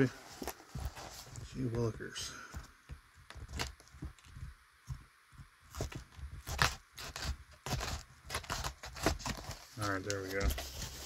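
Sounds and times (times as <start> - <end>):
trading cards tapping and rustling: 0.0 - 11.0.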